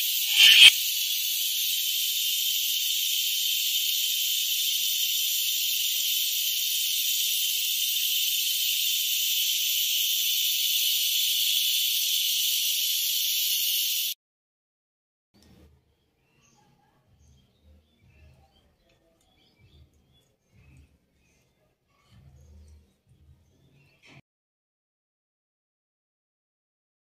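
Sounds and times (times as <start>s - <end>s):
batter hissing in a hot pan: 0.0s - 14.2s.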